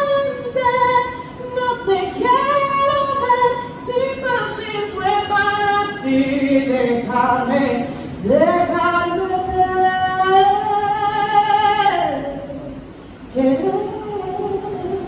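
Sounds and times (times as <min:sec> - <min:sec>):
woman singing unaccompanied: 0:00.0 - 0:15.0.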